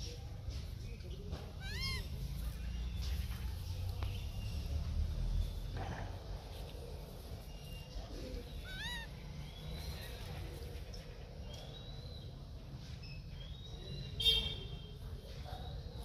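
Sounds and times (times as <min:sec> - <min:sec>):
high-pitched animal calls: 0:01.6 - 0:02.2, 0:08.5 - 0:09.2.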